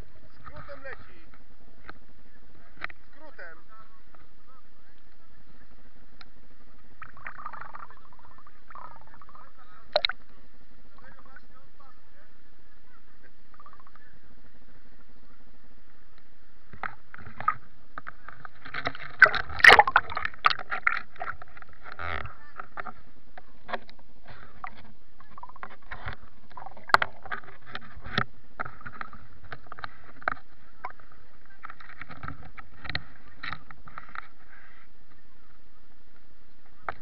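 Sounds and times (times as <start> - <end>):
water splashing against boat: 16.8 - 34.5.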